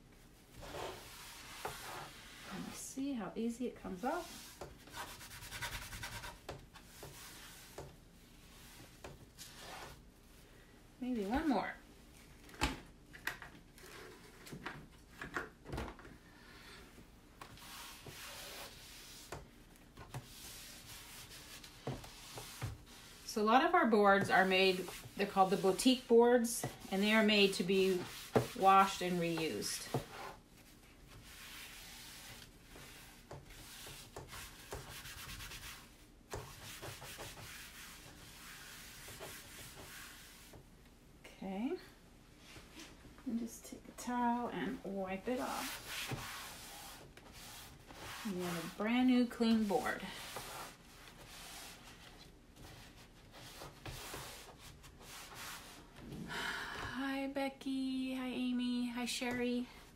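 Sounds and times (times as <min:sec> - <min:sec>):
wipe scrubbing board: 0:00.6 - 0:02.8, 0:04.0 - 0:10.1, 0:17.5 - 0:40.6, 0:45.3 - 0:56.0.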